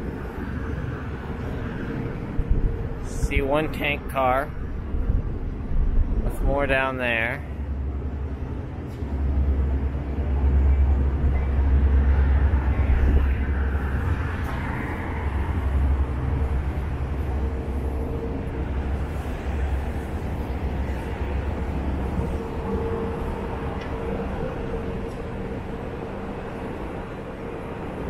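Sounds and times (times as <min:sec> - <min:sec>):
steady low traffic rumble: 0:00.0 - 0:28.0.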